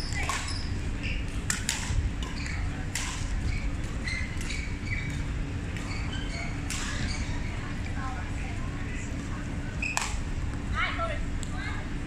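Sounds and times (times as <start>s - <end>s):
low rumble of hall: 0.0s - 12.0s
sneakers squeaking on hardwood: 3.5s - 7.5s.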